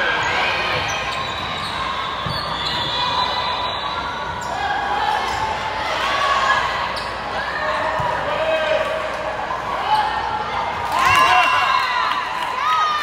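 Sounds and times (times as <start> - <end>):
sneakers squeaking on gym floor: 0.0 - 5.6, 6.9 - 8.0
murmur of crowd chatter: 0.0 - 13.0.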